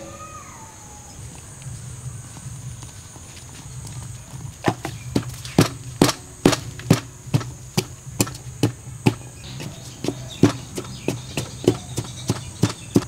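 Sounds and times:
high-pitched whine: 0:00.0 - 0:04.3.

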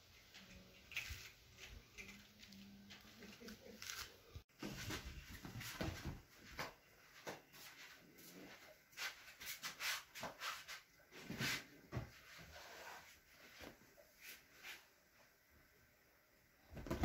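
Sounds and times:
kittens scuffling on upholstery: 0:16.7 - 0:17.0.

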